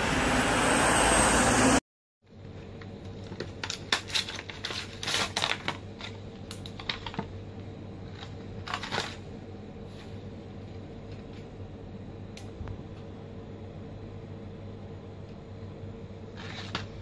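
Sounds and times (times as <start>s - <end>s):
faint steady hum: 0.0s - 17.0s
plastic crinkling: 3.1s - 7.4s, 8.0s - 9.3s.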